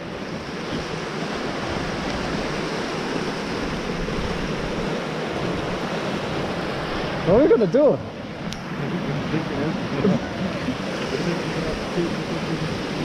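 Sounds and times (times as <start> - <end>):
water rushing over rocks: 0.0 - 13.0.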